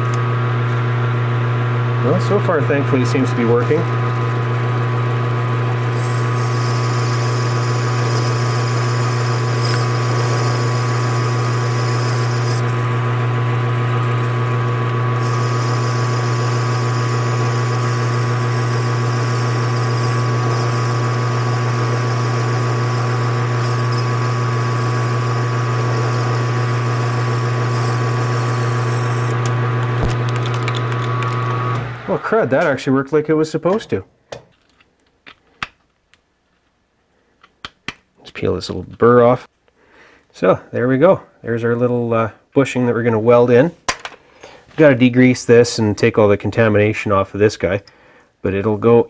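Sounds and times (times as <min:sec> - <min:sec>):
metal lathe humming: 0:00.0 - 0:32.8.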